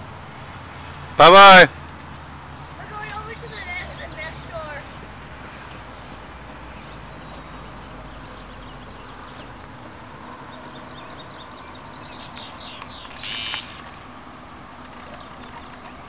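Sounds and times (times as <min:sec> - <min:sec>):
birds chirping: 0:00.0 - 0:16.0
loud buzzy bird call: 0:12.4 - 0:13.8.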